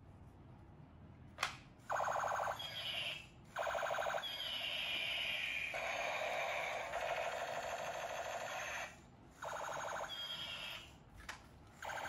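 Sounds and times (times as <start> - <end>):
electronic machine-gun rattle: 1.9 - 10.8.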